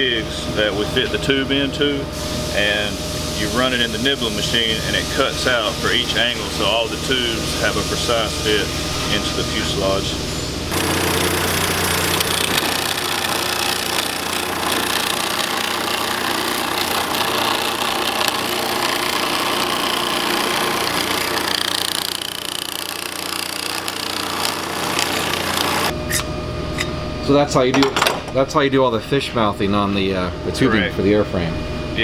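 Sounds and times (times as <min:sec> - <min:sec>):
nibbling machine chattering: 0:10.7 - 0:25.9.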